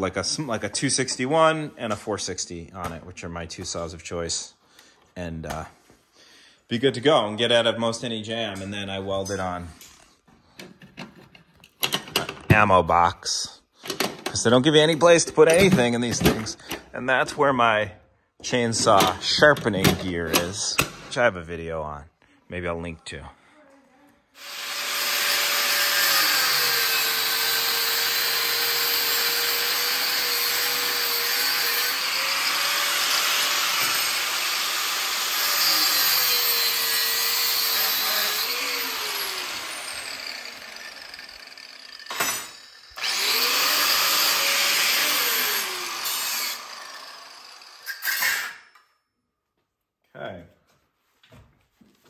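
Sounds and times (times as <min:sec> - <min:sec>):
angle grinder grinding steel: 0:24.4 - 0:48.8.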